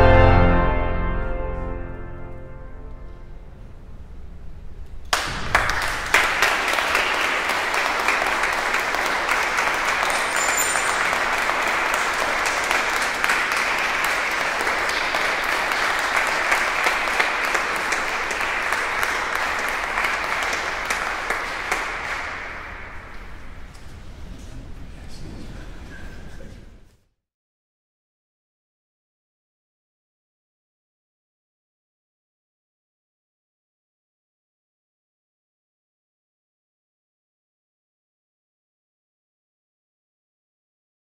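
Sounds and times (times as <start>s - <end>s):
audience applauding: 5.1s - 23.7s.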